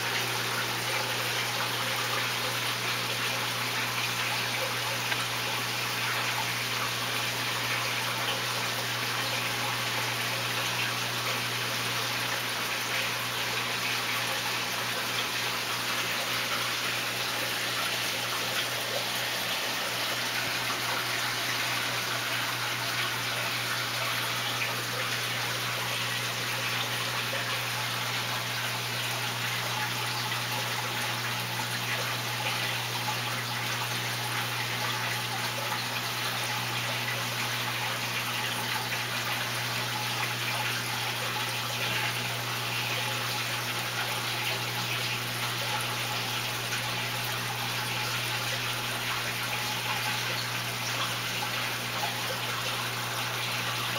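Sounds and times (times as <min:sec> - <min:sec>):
aquarium filter water rushing: 0:00.0 - 0:53.9.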